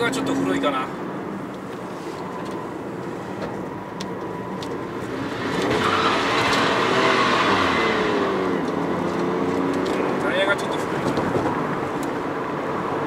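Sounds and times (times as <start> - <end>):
car engine revving hard: 5.0 - 13.0.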